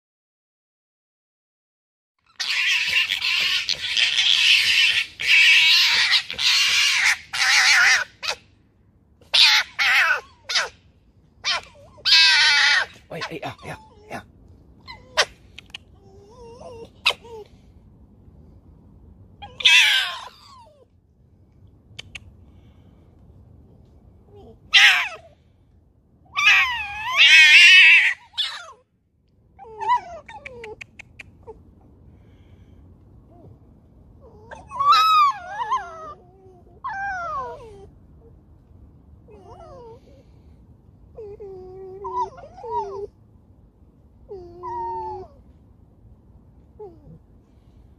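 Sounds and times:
foxes gekkering: 2.2 - 8.4, 9.2 - 10.8, 11.4 - 16.0, 19.4 - 20.7, 24.7 - 25.2.

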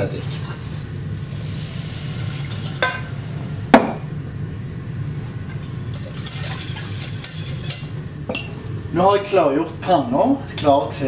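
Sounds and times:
steady low hum: 0.0 - 11.0
glass clinking on saucepan: 5.5 - 8.5.

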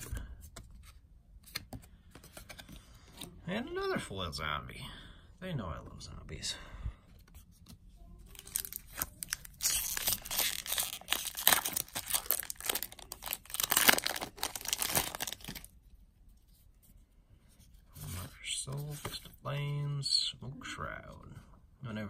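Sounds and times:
foil wrapper crinkling: 8.3 - 15.7.

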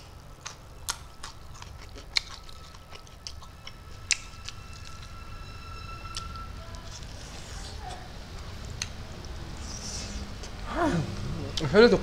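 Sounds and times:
wet chewing mouth clicks: 0.4 - 4.9.

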